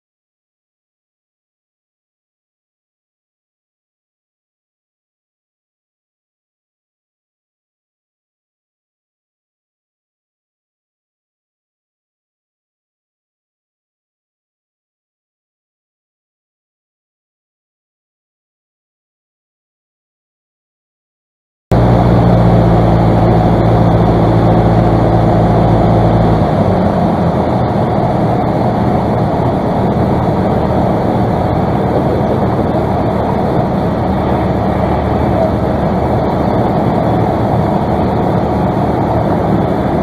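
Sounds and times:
light aircraft engine and propeller: 0:21.7 - 0:40.0
rushing airflow: 0:21.7 - 0:40.0.

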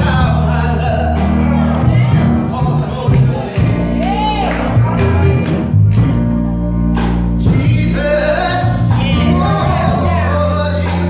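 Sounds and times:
bass notes: 0:00.0 - 0:11.0
keyboard chords: 0:00.0 - 0:11.0
woman singing gospel: 0:07.4 - 0:11.0.

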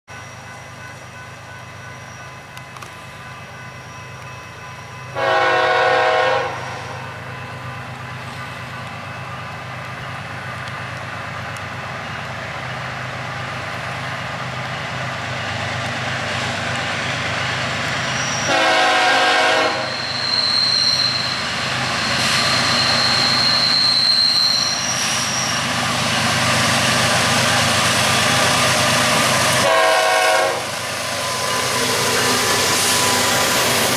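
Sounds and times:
diesel locomotive engine rumble: 0:00.1 - 0:33.9
train air horn blasts: 0:05.2 - 0:07.1, 0:18.4 - 0:20.2, 0:29.5 - 0:30.8.

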